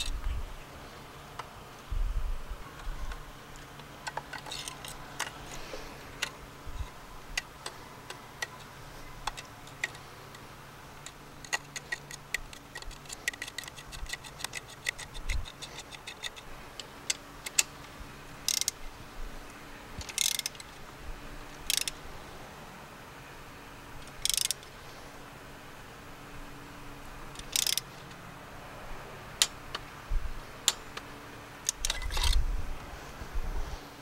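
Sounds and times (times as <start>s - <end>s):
hand ratchet clicking: 4.0s - 5.6s, 11.0s - 17.7s, 18.4s - 18.8s, 20.0s - 20.8s, 21.6s - 22.0s, 24.0s - 24.7s, 27.3s - 27.9s, 31.6s - 32.4s.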